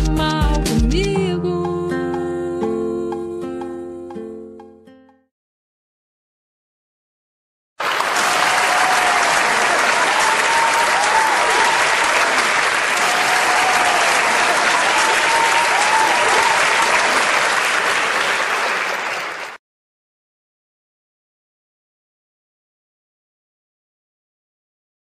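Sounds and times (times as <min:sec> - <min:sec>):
audience applauding: 0:07.8 - 0:19.6.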